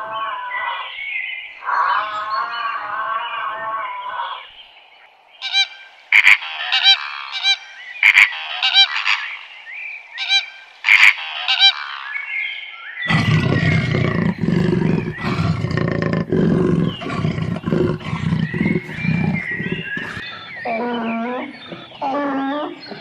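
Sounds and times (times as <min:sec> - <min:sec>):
bird honking calls: 0:05.4 - 0:09.5, 0:10.1 - 0:12.3
deep animal roar: 0:13.1 - 0:23.0.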